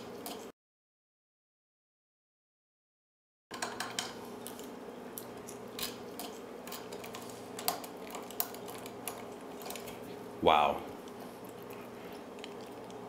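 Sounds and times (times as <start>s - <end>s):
steady low hum: 4.0s - 13.0s.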